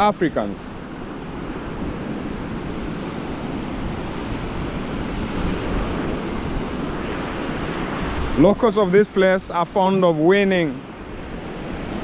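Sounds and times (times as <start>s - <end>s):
surf waves washing on sand: 0.0s - 12.0s
wind rumbling on microphone: 0.0s - 12.0s.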